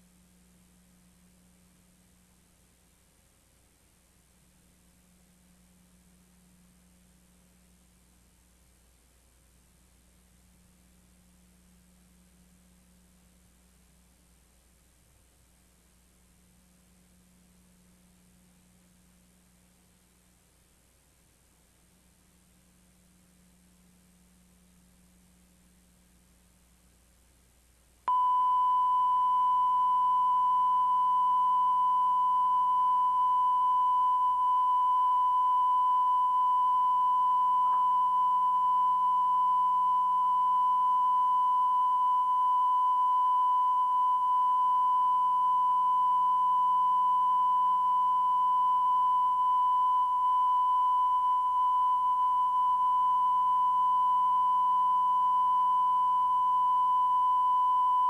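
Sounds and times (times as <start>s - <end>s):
high-pitched test tone beep: 28.1s - 58.0s.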